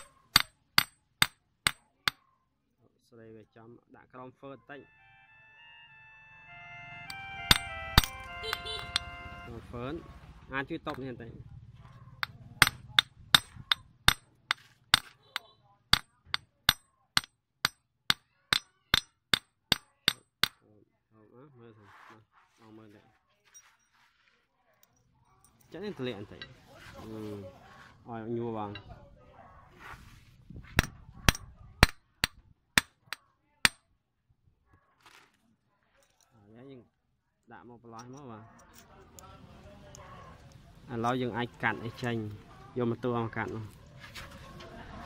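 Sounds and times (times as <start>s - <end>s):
hammer striking metal: 0.0s - 2.2s, 7.1s - 9.2s, 12.2s - 20.6s.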